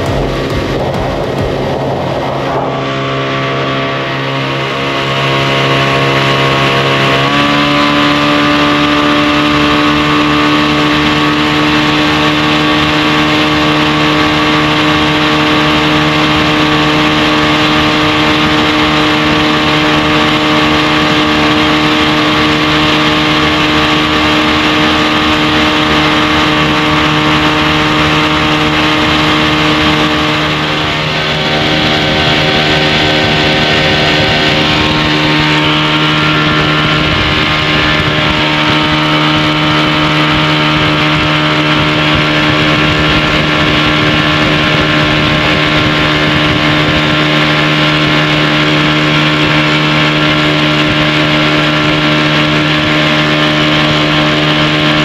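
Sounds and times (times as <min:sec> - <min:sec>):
outboard motor running hard: 0:00.0 - 0:55.0.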